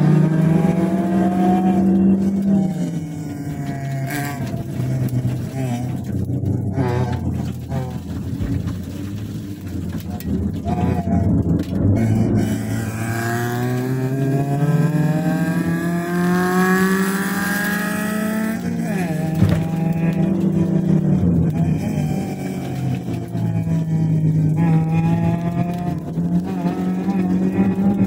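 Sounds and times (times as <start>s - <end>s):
car engine revving: 0.0s - 28.0s.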